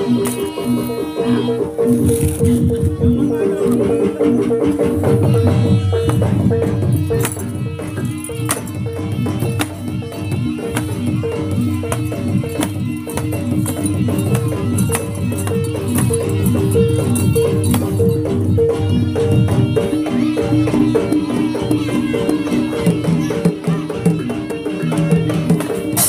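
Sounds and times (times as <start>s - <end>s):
gamelan music: 0.0s - 26.0s
sharp percussive clacks and rattles: 6.0s - 18.4s.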